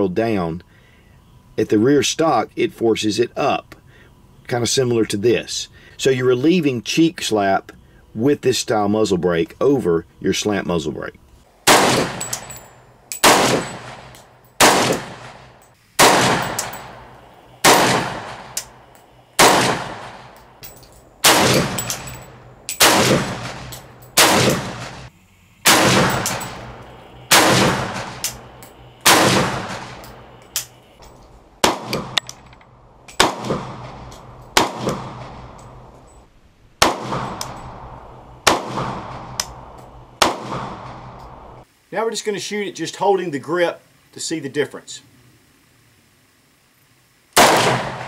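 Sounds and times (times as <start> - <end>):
rifle shots echoing: 11.6 - 35.9, 36.8 - 41.6, 47.4 - 48.0.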